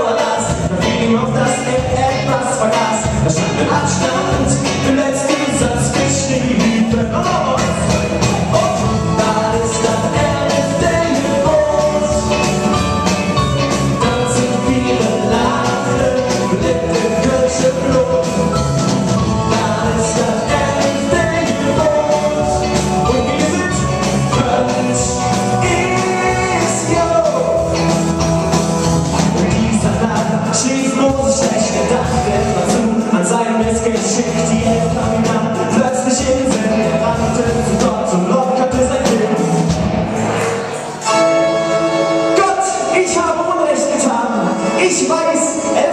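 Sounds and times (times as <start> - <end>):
man singing lead vocal: 0.0 - 28.2, 29.1 - 39.8, 42.3 - 45.9
drum kit: 0.0 - 45.9
keyboard: 0.0 - 45.9
electric guitar: 0.2 - 33.0.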